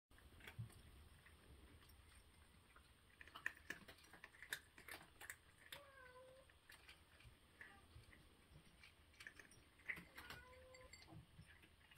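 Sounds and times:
cat crunching dry food: 0.2 - 11.9.

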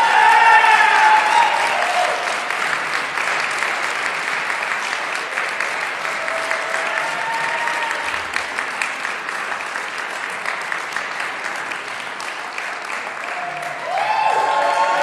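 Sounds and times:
voices cheering: 0.0 - 2.6, 6.0 - 8.4, 13.2 - 15.0
audience applauding: 0.0 - 15.0.

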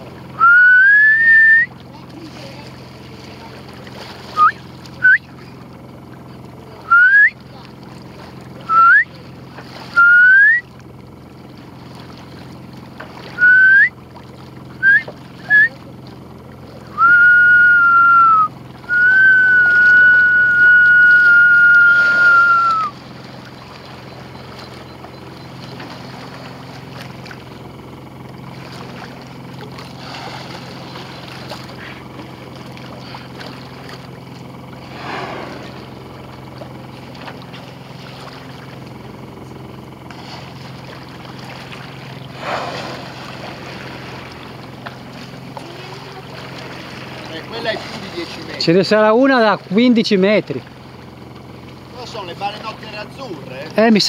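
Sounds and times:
low hum of boat and sea: 0.0 - 54.0
person whistling: 0.4 - 1.7, 4.4 - 5.3, 6.9 - 7.4, 8.7 - 9.1, 10.0 - 10.6, 13.4 - 13.9, 14.8 - 15.7, 16.9 - 23.0.

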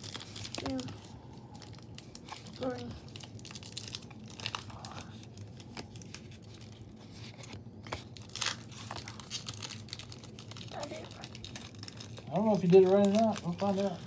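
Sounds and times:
faint low hum: 0.0 - 14.0
cards rustling and flicking: 3.8 - 14.0.

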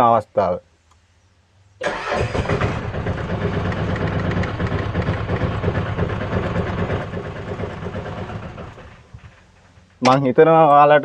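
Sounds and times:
engine cranking: 1.8 - 10.3.

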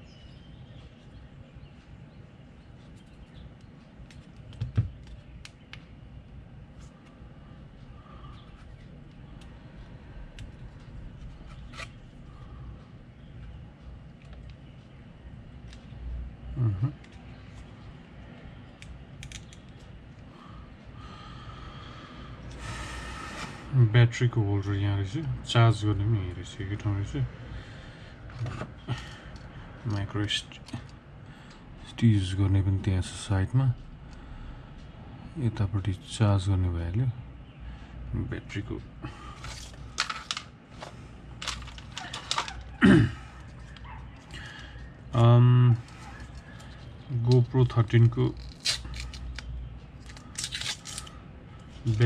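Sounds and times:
short low vocal sound: 16.5 - 17.0
plastic clicks and crackling: 18.8 - 19.9, 39.4 - 42.8.

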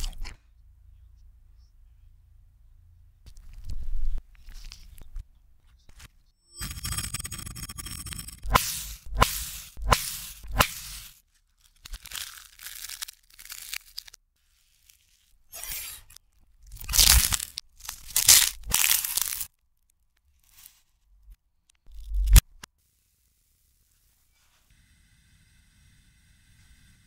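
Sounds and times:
reversed onion skin tearing: 10.5 - 20.9.

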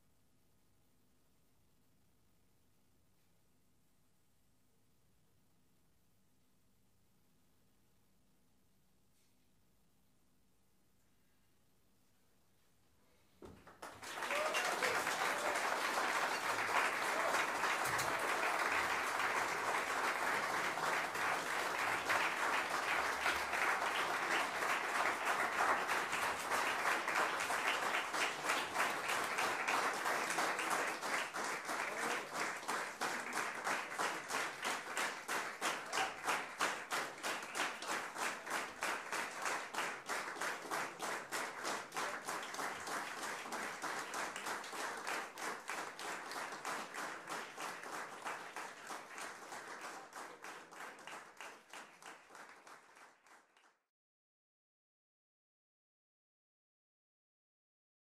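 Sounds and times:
audience applauding: 13.5 - 53.8.

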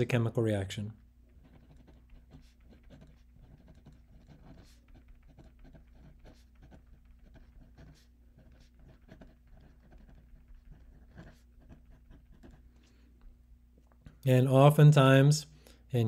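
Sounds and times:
low steady hum: 0.0 - 16.0
pen scratching on paper: 1.3 - 12.9.

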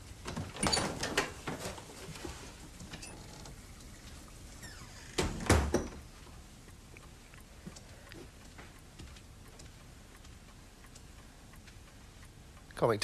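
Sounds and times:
door creaking: 0.3 - 1.8, 2.8 - 3.7, 4.5 - 6.1
door closing with thud: 4.6 - 6.1.

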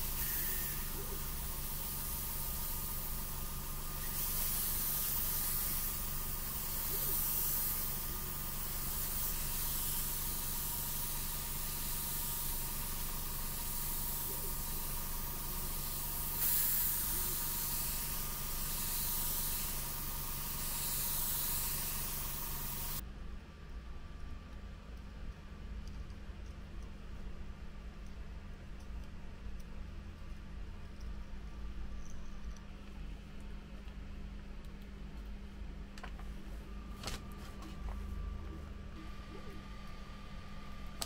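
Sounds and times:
airbrush spraying hiss: 0.0 - 23.0
steady hum: 0.0 - 41.0.

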